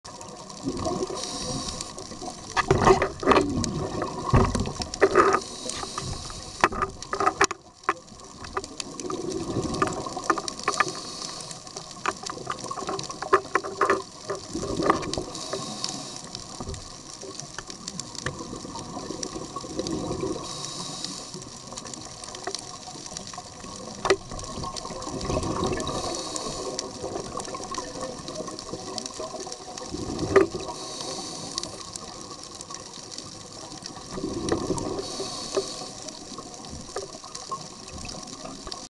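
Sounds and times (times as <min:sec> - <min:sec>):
exhaled bubbles rushing: 0:00.2 - 0:06.5, 0:08.2 - 0:10.7, 0:14.4 - 0:15.4, 0:18.3 - 0:20.6, 0:23.5 - 0:30.8, 0:33.8 - 0:35.4
regulator hissing: 0:01.1 - 0:02.2, 0:05.4 - 0:06.8, 0:10.7 - 0:11.8, 0:15.3 - 0:16.4, 0:20.4 - 0:21.4, 0:25.8 - 0:27.0, 0:30.7 - 0:31.8, 0:35.0 - 0:36.1.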